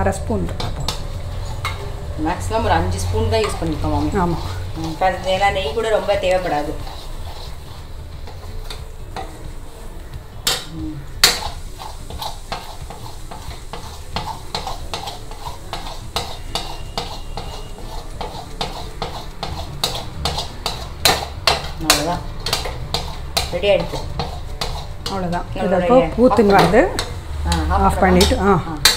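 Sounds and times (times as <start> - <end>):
spatula clanking on metal: 0.0 - 9.5, 10.4 - 28.9
metal spatula scraping a pan: 0.0 - 28.9.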